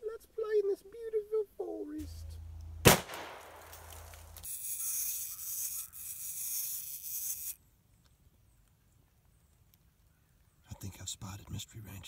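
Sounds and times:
shotgun shot with echo: 2.8 - 3.9.

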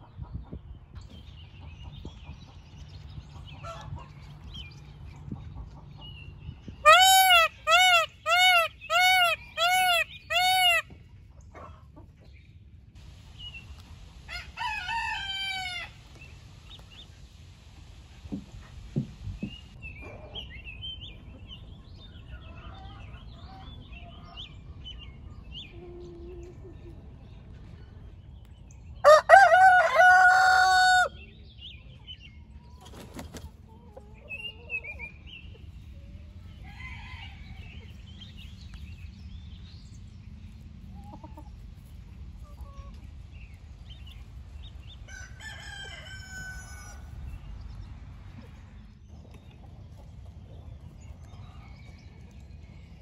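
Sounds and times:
chickens clucking: 0.0 - 12.5, 18.0 - 24.5, 25.6 - 27.7, 29.3 - 39.0, 40.4 - 52.6
rooster crowing: 14.3 - 16.0, 29.0 - 31.2, 45.1 - 47.1.

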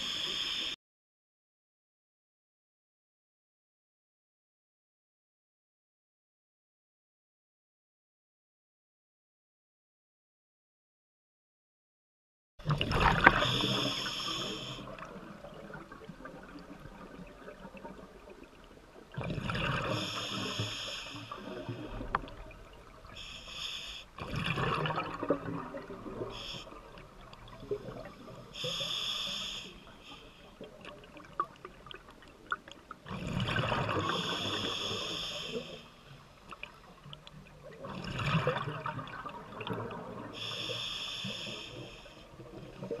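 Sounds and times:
scuba regulator hissing inhalations: 0.0 - 0.8, 13.3 - 14.9, 19.8 - 21.5, 23.1 - 24.2, 26.3 - 26.8, 28.3 - 30.6, 34.0 - 36.0, 40.4 - 42.2.

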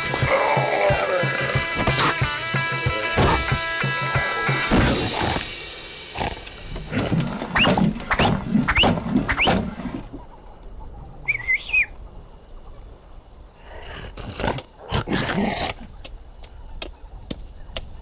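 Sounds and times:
loud animal-like cries: 0.0 - 5.5
quiet outdoor ambience: 0.0 - 18.0
short rustling hits: 6.5 - 10.2
short bird chirp: 7.5 - 10.3, 11.3 - 12.0.

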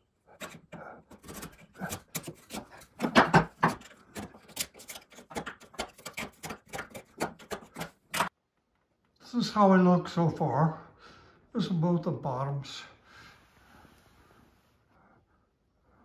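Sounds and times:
chisel scraping wood: 0.2 - 8.3.

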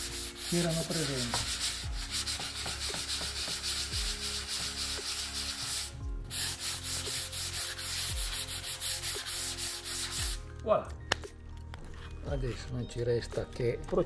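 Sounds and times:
sandpaper scratching on wood: 0.0 - 10.4.

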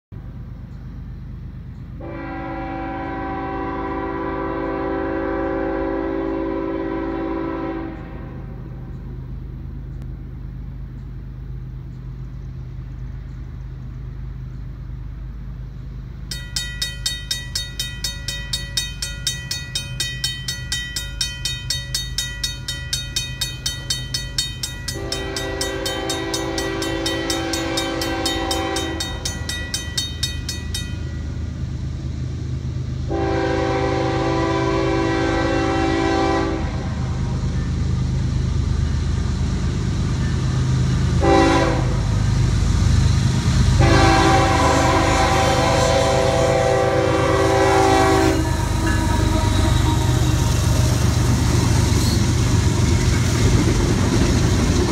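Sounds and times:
locomotive horn blasts: 2.0 - 9.0, 24.9 - 29.9, 33.1 - 37.4, 41.2 - 42.2, 43.8 - 51.3
crossing bell ringing: 16.2 - 31.8, 45.8 - 53.7.

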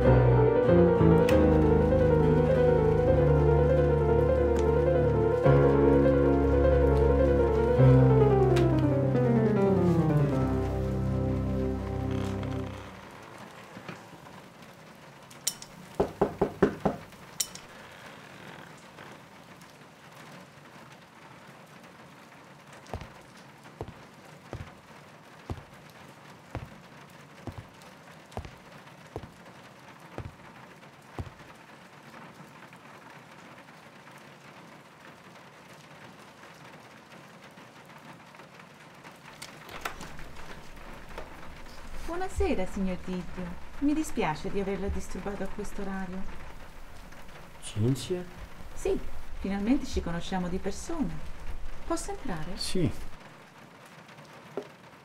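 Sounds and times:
steady rain: 0.0 - 55.0
footsteps on a wooden floor: 9.1 - 13.4, 23.0 - 23.2, 23.8 - 24.8, 25.5 - 25.8, 26.6 - 26.8, 27.5 - 27.8, 28.4 - 28.6, 29.2 - 29.4, 30.2 - 30.4, 31.2 - 31.4
knocks on a wooden door: 16.0 - 17.1, 26.6 - 26.8, 27.5 - 27.7, 30.2 - 30.4, 31.2 - 31.4.

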